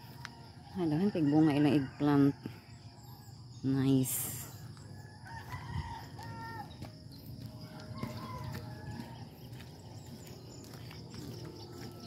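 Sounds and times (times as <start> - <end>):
rooster crowing: 5.0 - 9.8.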